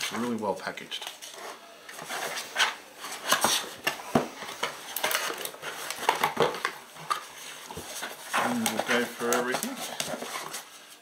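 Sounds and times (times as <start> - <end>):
plastic bags crinkling: 2.2 - 11.0.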